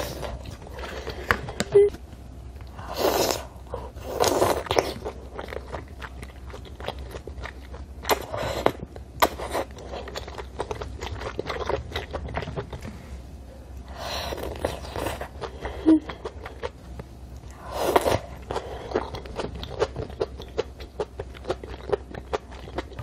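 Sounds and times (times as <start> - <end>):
wet chewing with mouth clicks: 0.0 - 13.0, 14.2 - 23.0.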